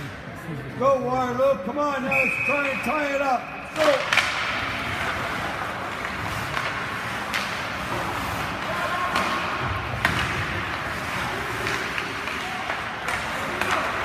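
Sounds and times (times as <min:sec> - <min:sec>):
hockey sticks knocking puck: 0:03.7 - 0:14.0.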